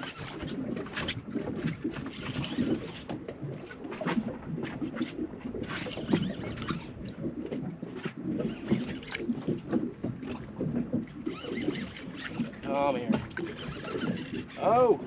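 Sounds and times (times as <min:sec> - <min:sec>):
fishing reel clicking and whirring: 0:00.0 - 0:03.2, 0:05.7 - 0:07.1, 0:08.4 - 0:09.5, 0:11.2 - 0:15.0
water slapping boat hull: 0:00.0 - 0:15.0.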